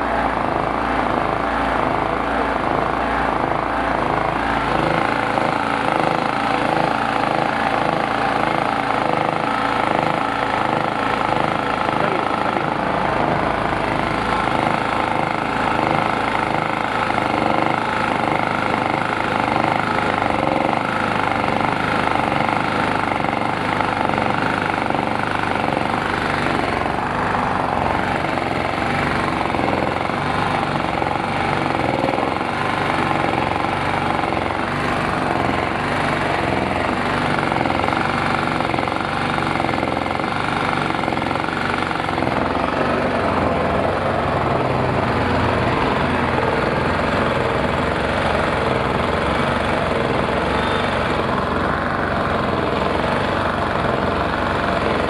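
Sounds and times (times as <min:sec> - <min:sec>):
generator engine running: 0:00.0 - 0:55.0.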